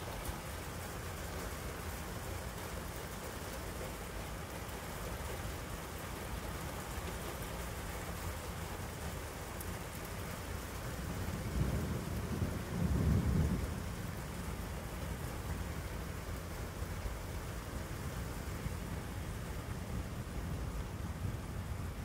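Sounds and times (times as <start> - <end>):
steady rain: 0.0 - 22.0
distant thunder rumble: 11.2 - 15.0.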